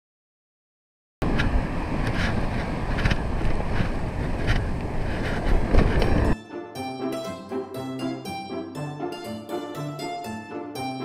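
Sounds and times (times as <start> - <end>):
wind buffeting microphone: 1.2 - 6.4.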